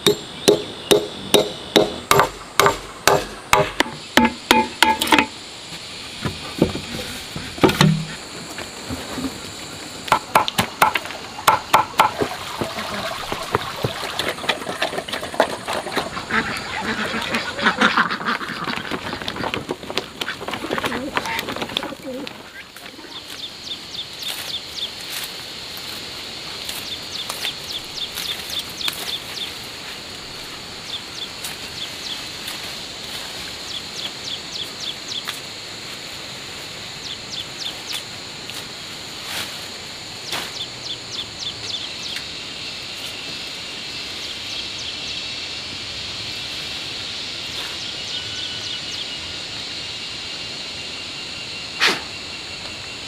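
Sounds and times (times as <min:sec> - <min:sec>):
rapid chirping trills: 0:00.0 - 0:05.0.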